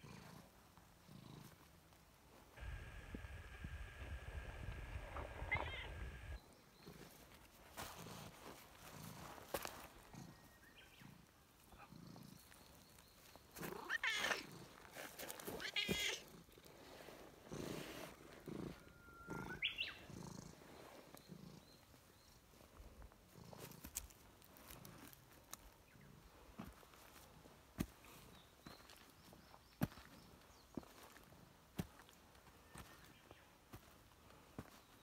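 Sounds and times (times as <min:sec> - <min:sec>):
cat purring: 0:01.0 - 0:01.7, 0:10.0 - 0:12.9, 0:16.2 - 0:24.0
cat meow-like calls: 0:05.2 - 0:06.4, 0:13.8 - 0:14.4, 0:15.6 - 0:16.2
cat rising chirp: 0:05.2 - 0:06.4, 0:18.5 - 0:20.1.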